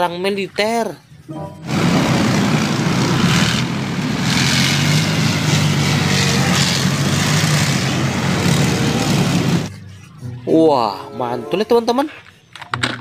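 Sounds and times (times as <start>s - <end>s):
tracked vehicle engines droning: 1.0s - 12.4s
heavy mechanical noise: 1.6s - 9.9s.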